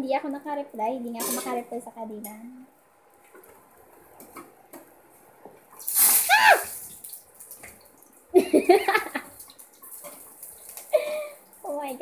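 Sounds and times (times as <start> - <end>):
person crying out: 6.2 - 6.7.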